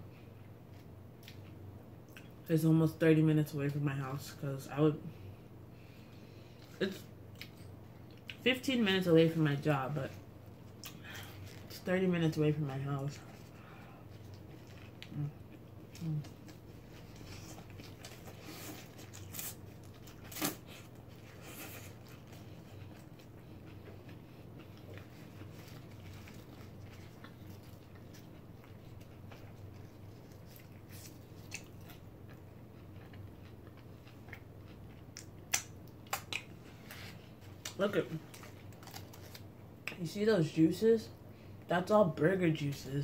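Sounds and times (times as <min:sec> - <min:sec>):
person chewing food: 0:13.2 - 0:39.4.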